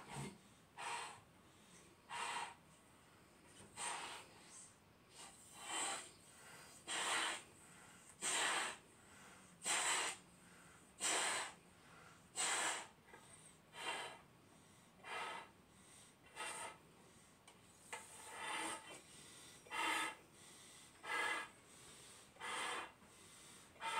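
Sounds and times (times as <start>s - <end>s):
loud breaths: 0.0s - 23.9s
person blowing up balloons: 3.8s - 4.3s, 5.1s - 6.1s, 6.8s - 7.5s, 8.2s - 8.8s, 9.6s - 10.2s, 11.0s - 11.6s, 12.3s - 13.0s, 16.3s - 16.8s, 18.1s - 19.0s.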